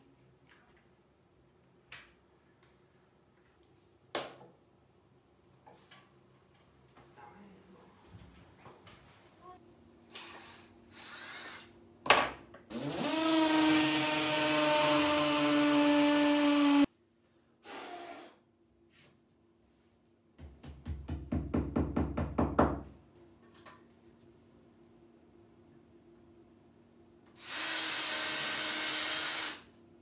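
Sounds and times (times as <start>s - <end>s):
cordless drill running: 10.9s - 11.7s, 12.7s - 16.8s, 27.4s - 29.7s.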